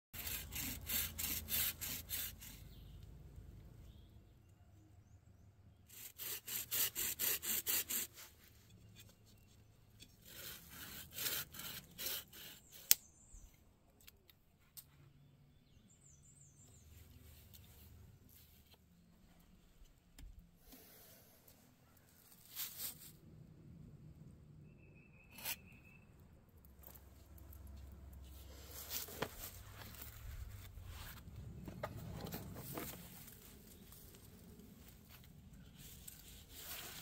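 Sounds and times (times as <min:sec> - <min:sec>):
hand saw cutting wood: 0:00.2 - 0:02.7, 0:05.9 - 0:08.3, 0:10.2 - 0:13.0.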